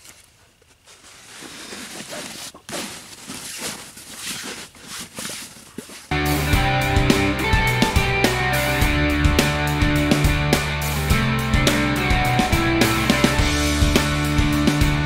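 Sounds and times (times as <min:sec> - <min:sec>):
fabric rustling: 0:00.0 - 0:06.1
rock music with guitar: 0:06.1 - 0:15.0.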